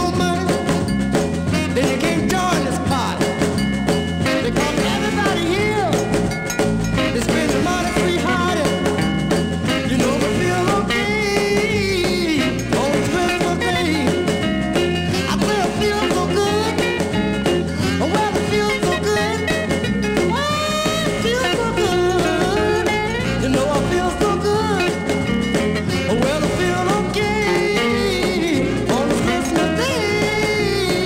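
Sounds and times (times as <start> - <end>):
person singing: 0.0 - 0.8, 1.5 - 3.4, 4.3 - 6.2, 7.0 - 9.0, 9.7 - 14.5, 15.1 - 25.1, 25.8 - 31.0
band with steady beat: 0.0 - 31.0
walking bass: 0.0 - 31.0.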